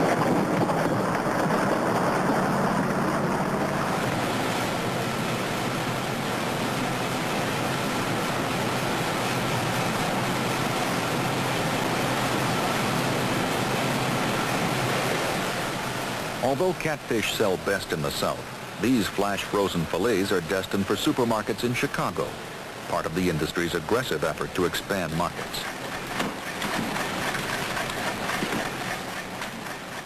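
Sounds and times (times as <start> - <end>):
low engine hum: 0.0 - 20.6
water rushing: 0.0 - 30.0.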